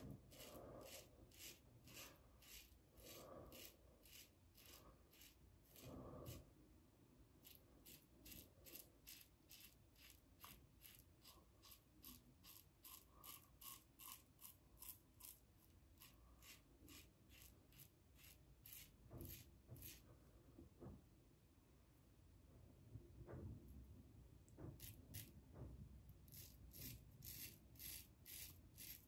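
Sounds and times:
razor scraping stubble: 0.0 - 6.5, 7.4 - 20.0, 26.3 - 29.0.

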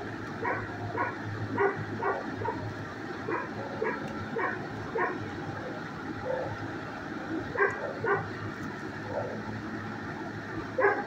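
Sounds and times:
dogs barking: 0.4 - 6.6, 7.4 - 8.4, 9.0 - 9.6, 10.7 - 11.0.

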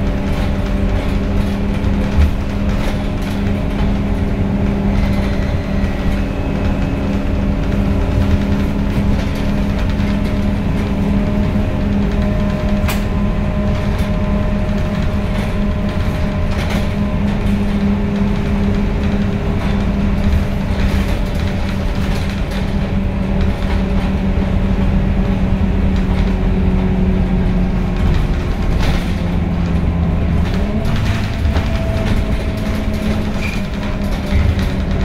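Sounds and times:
bus engine drone: 0.0 - 35.0
gearbox whine: 1.5 - 20.7.

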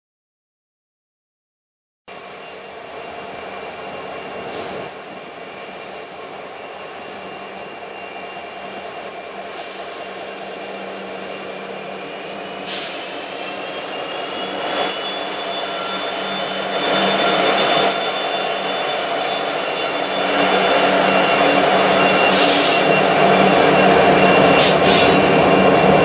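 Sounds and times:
diesel locomotives passing: 2.1 - 26.0
high squeals: 2.1 - 26.0.

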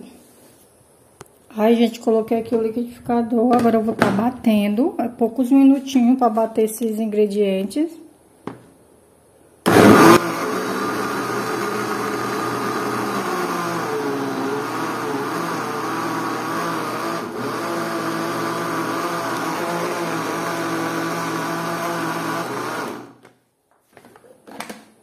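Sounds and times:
blender running: 9.7 - 23.2.

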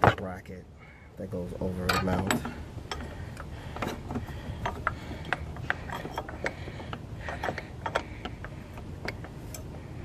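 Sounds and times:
metal clinks and knocks: 1.8 - 9.8.

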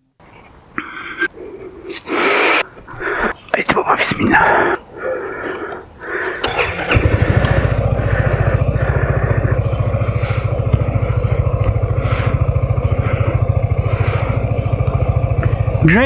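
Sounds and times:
scooter engine starting and idling: 5.2 - 16.0.

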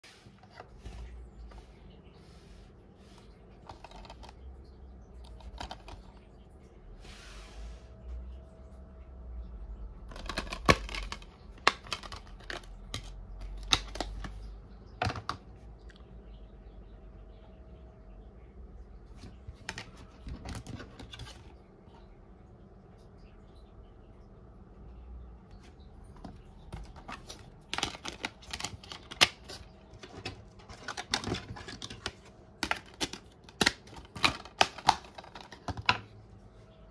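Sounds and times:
shrink wrap crinkling: 10.0 - 14.5, 26.2 - 36.1.

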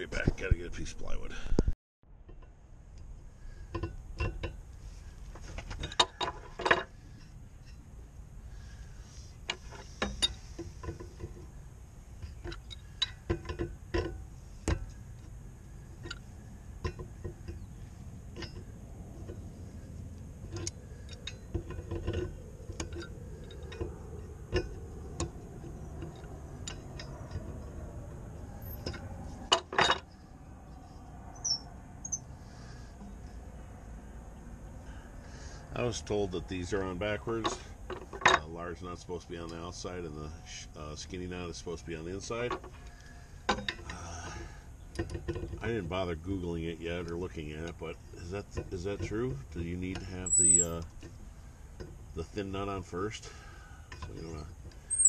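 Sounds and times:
metal clatter: 28.4 - 30.2.

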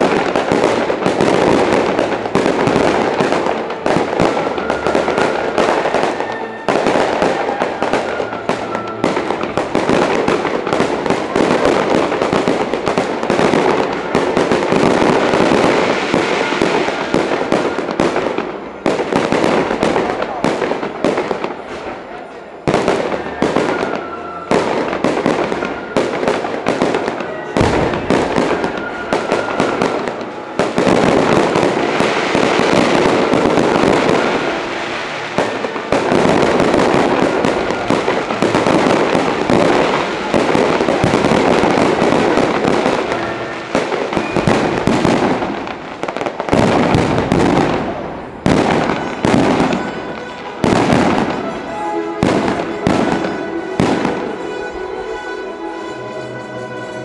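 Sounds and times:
firework shells bursting: 0.0 - 21.7, 24.9 - 55.3.

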